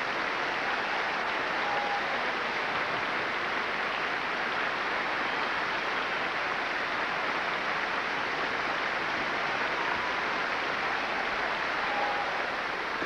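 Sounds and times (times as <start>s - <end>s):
large audience applauding: 0.0s - 13.0s.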